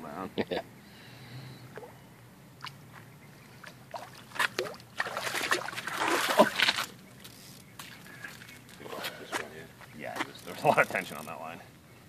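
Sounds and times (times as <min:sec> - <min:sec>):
fish thrashing and splashing water: 0:03.9 - 0:07.0.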